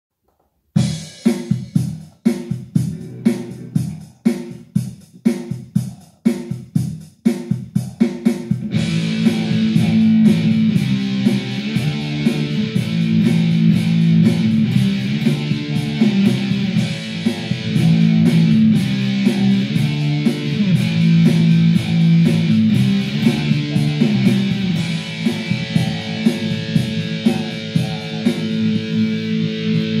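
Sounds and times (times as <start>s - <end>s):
drums: 0.3s - 30.0s
electric guitar metal riff: 8.6s - 30.0s.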